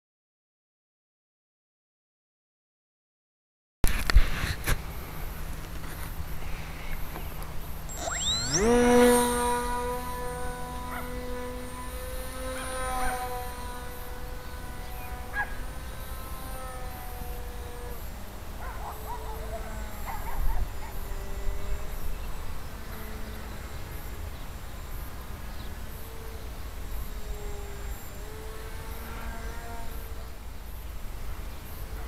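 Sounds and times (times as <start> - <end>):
model plane motor whining: 5.6 - 30.5.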